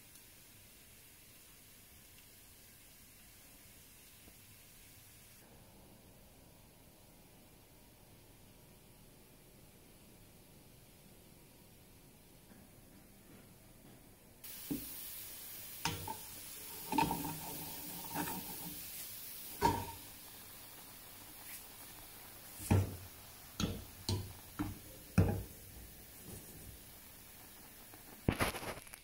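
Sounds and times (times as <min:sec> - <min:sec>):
oats bubbling in a pot: 0:00.0 - 0:12.4, 0:14.4 - 0:29.0
utensil knocking on metal pot: 0:23.6 - 0:25.5.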